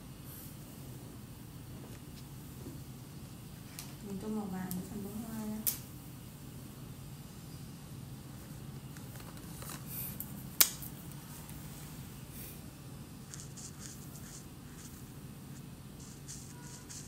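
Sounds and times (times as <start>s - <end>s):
steady low hum: 0.0s - 17.0s
marker scratching on paper: 13.2s - 17.0s.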